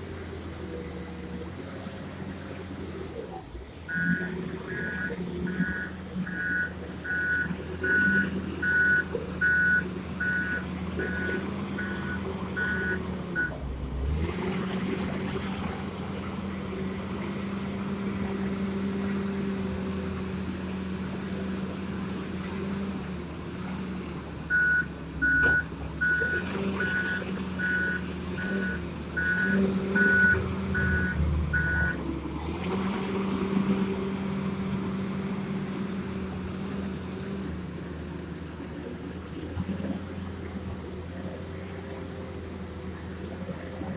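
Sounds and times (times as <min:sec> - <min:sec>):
diesel engine running: 0:00.0 - 0:43.9
reversing alarm beeps: 0:03.9 - 0:13.6, 0:24.5 - 0:32.0.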